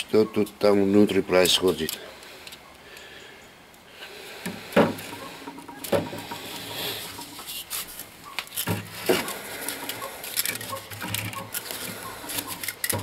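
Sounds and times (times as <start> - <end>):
plastic and metal clicks and rattles: 8.5 - 13.0.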